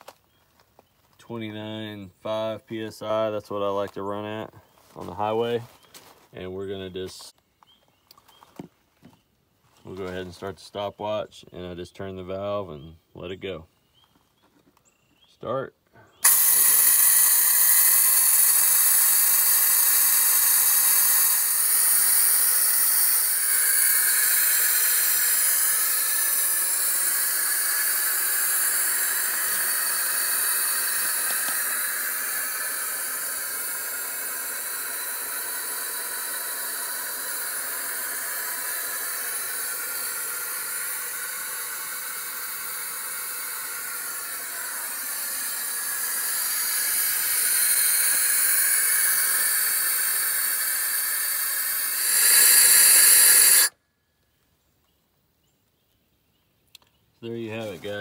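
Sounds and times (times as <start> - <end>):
air hissing out of tires: 16.2 - 53.8.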